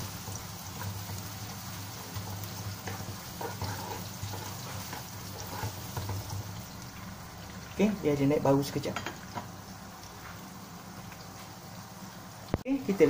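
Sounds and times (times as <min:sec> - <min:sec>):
onions sizzling in hot oil: 0:00.0 - 0:13.0
spatula scraping pan: 0:00.7 - 0:06.5.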